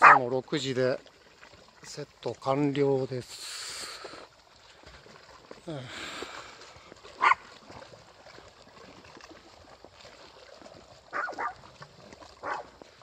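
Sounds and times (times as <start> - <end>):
small dog yipping: 0.0 - 0.2, 7.2 - 7.4, 11.1 - 11.6, 12.4 - 12.7.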